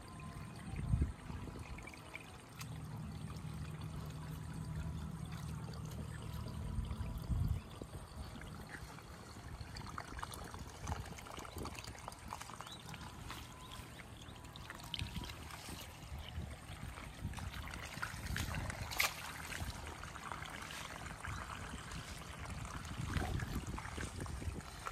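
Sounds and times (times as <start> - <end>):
water trickling and splashing: 0.0 - 24.9
low rumble: 2.8 - 10.8.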